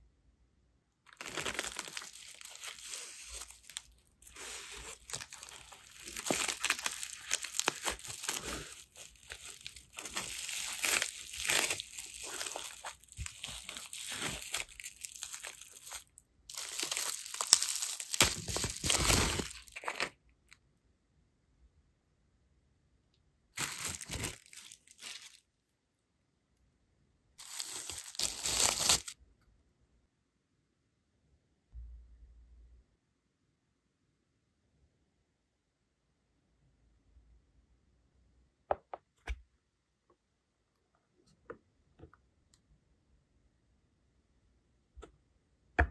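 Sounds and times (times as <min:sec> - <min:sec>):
plastic packaging crinkling: 0:01.1 - 0:20.1, 0:23.6 - 0:25.4, 0:27.4 - 0:29.2.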